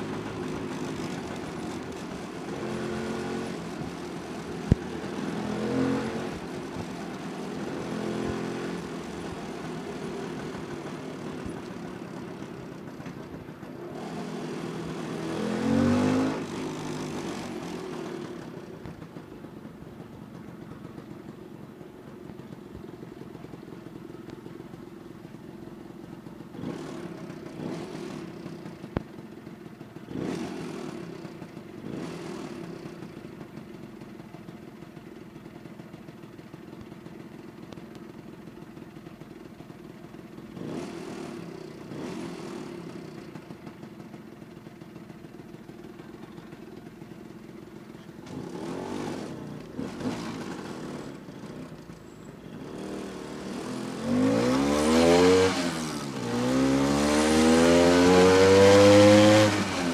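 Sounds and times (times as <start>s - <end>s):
scooter engine idling: 0.0s - 57.6s.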